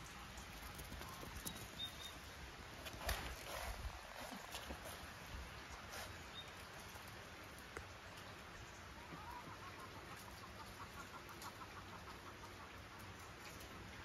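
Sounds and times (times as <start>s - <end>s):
puppies' paws pattering on cobblestones: 0.0s - 8.4s
faint bird calls: 8.9s - 12.8s.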